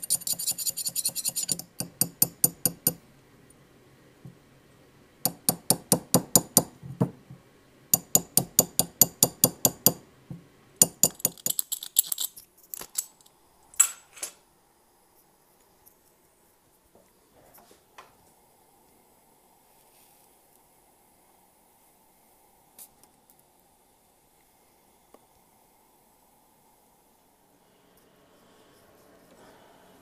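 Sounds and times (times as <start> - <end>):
hammer tapping on metal: 0.0 - 3.0, 5.3 - 7.2, 8.0 - 11.5.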